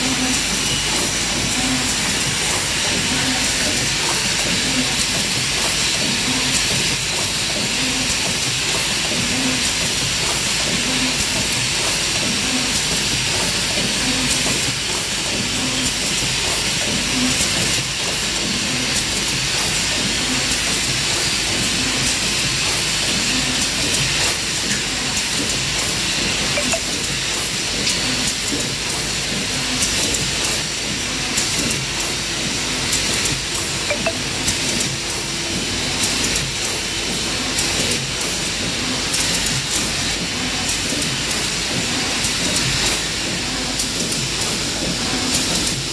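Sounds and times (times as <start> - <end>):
machine hiss: 0.0 - 45.9.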